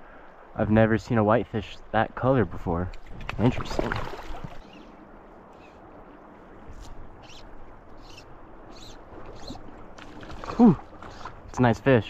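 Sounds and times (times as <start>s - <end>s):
river water flowing: 0.0s - 12.0s.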